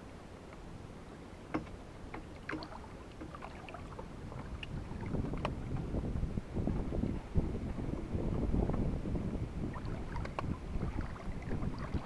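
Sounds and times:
water lapping against boat hull: 0.4 - 12.0
wind rumble on microphone: 2.5 - 12.0.

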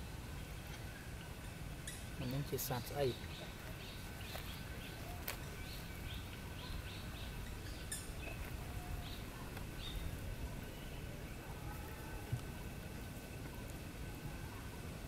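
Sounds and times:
bird chirping: 0.4 - 11.8.

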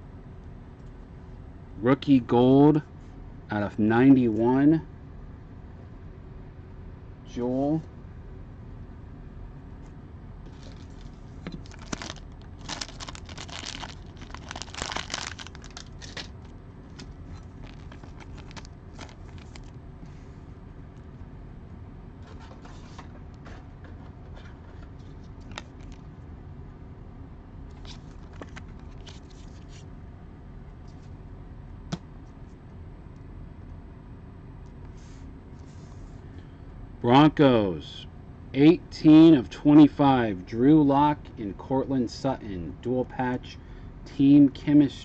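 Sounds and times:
faint steady hum: 0.0 - 45.0
plastic rustling and scraping: 10.4 - 19.8, 27.7 - 29.8.

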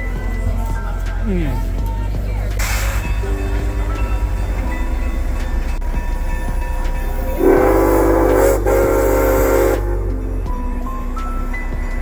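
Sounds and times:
train air horn chord: 7.0 - 10.8.

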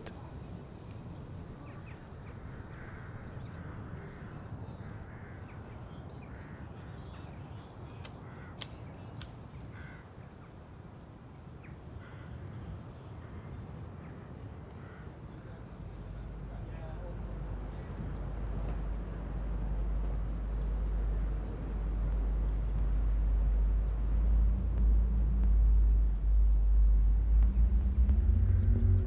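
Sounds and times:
crows cawing: 2.5 - 5.5, 8.2 - 8.7, 9.7 - 10.1, 12.0 - 12.4, 13.3 - 15.2
wind rumble: 13.2 - 29.0.

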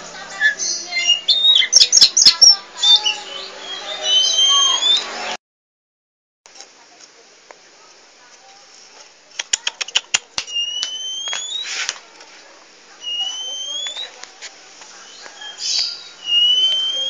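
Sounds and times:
bird rising whistles: 1.0 - 2.3, 3.0 - 5.1, 10.5 - 11.7, 13.0 - 14.1, 15.1 - 17.0
bird sharp clicks: 9.3 - 11.7, 13.0 - 14.2
rustles in cage: 9.7 - 16.8.

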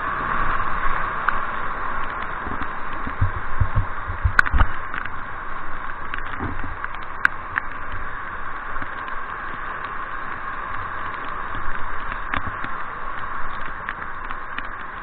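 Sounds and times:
low thumps: 3.0 - 4.8.

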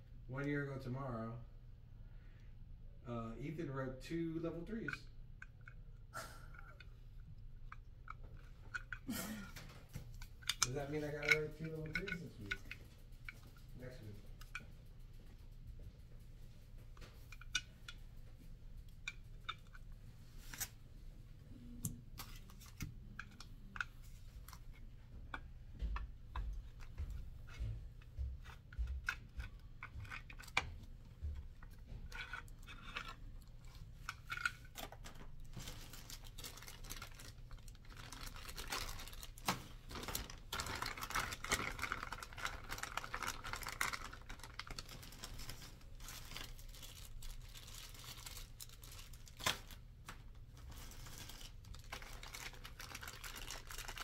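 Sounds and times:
light clicks and taps of parts: 4.4 - 19.9, 21.8 - 37.4.

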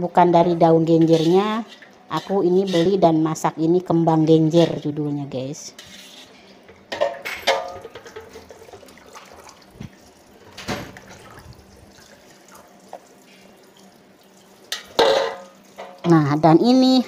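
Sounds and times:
water dripping and trickling: 7.7 - 16.4.

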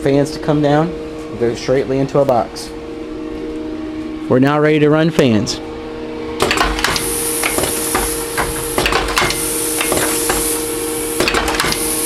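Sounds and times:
steady machine hum: 0.0 - 12.0
high hiss: 6.8 - 12.0.

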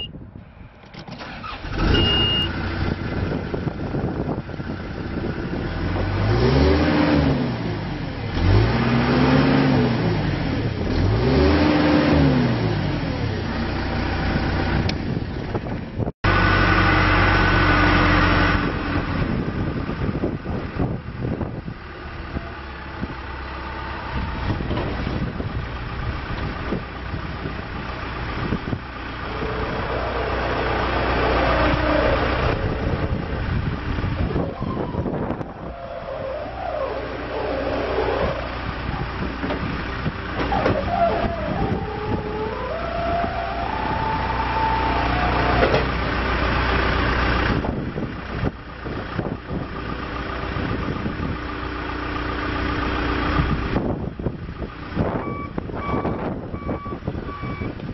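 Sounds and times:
diesel engine starting and revving: 0.0 - 57.9
short dashboard beep: 1.8 - 2.5, 55.2 - 57.8.

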